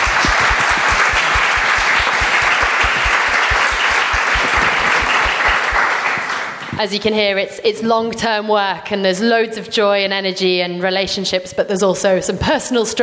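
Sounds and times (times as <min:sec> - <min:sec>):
audience applauding: 0:00.0 - 0:06.8
close hand claps: 0:00.0 - 0:06.8.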